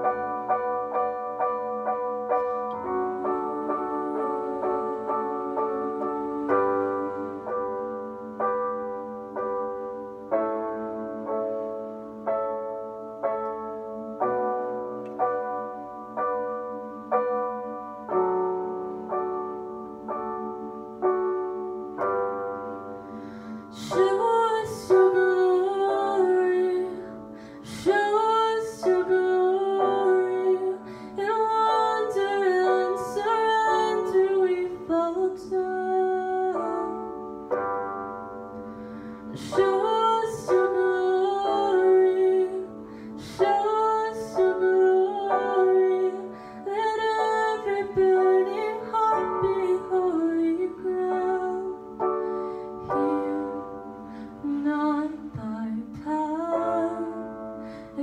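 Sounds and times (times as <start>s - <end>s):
piano accompaniment: 0.0s - 58.0s
woman singing: 2.7s - 7.9s, 23.7s - 37.4s, 39.3s - 52.2s, 52.8s - 58.0s.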